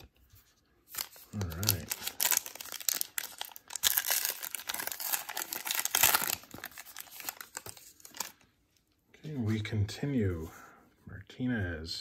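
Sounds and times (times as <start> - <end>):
wrapper tearing and crinkling: 0.9 - 8.4.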